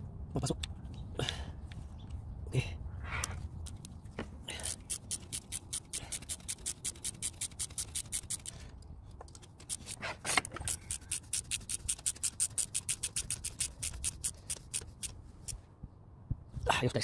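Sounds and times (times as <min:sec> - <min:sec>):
ratchet clicking: 0:04.6 - 0:08.6, 0:09.6 - 0:15.6.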